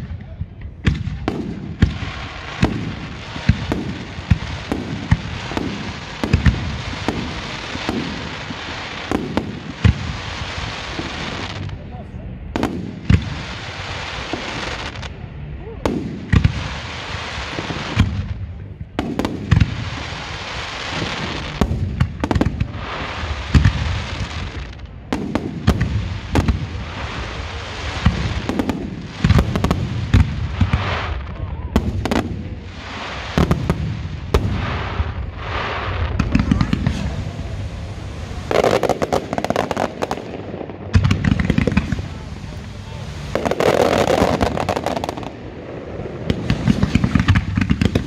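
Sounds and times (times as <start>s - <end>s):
sharp firework cracks: 0.0s - 11.8s, 12.6s - 15.2s, 15.9s - 48.0s
hiss of crackling stars: 1.4s - 48.0s.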